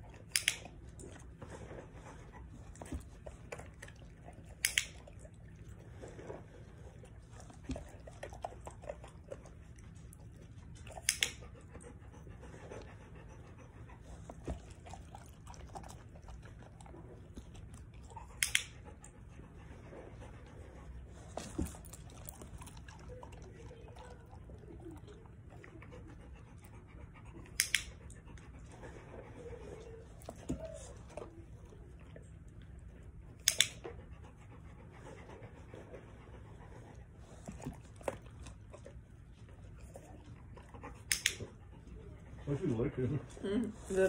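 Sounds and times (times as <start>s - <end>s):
dog panting: 0.0s - 44.0s.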